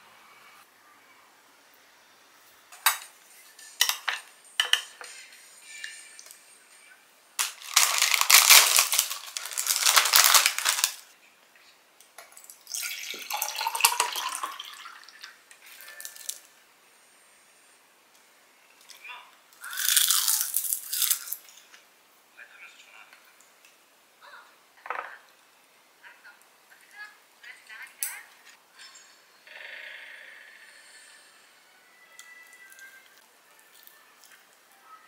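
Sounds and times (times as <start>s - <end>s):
dishes and cutlery clinking: 2.8s - 6.0s
plastic wrapper crinkling: 7.4s - 11.1s
juice pouring into glass: 12.5s - 15.2s.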